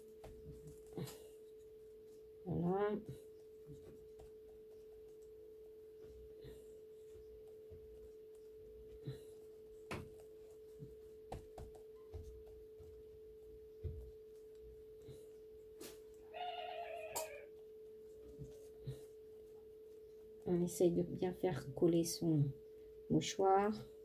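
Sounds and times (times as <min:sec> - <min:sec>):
faint steady hum: 0:00.0 - 0:24.0
paintbrush tapping on tissue: 0:09.8 - 0:15.1.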